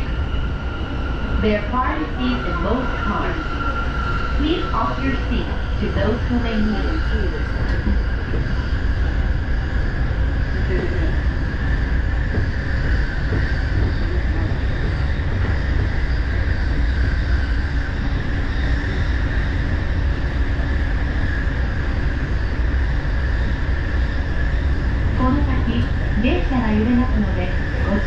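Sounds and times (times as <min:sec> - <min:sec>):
train rumbling over bridge: 0:00.0 - 0:28.0.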